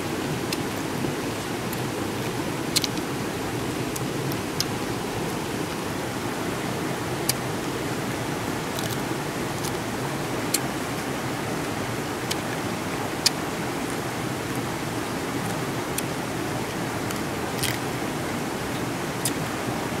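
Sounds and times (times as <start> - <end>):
river water flowing: 0.0 - 20.0
crab shell crunching: 8.7 - 9.8, 17.0 - 17.8.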